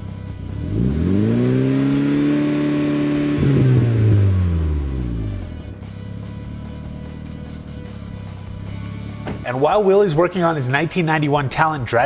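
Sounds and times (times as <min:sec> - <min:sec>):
car engine revving: 0:00.0 - 0:09.4.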